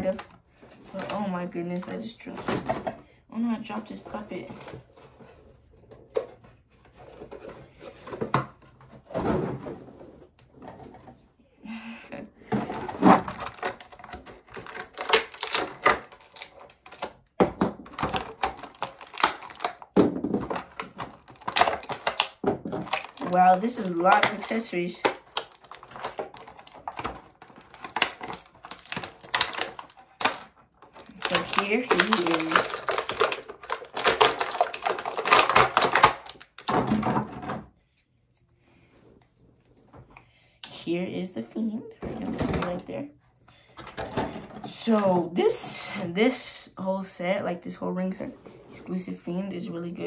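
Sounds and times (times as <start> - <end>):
plastic packaging crinkling: 13.0 - 17.3, 17.9 - 36.9.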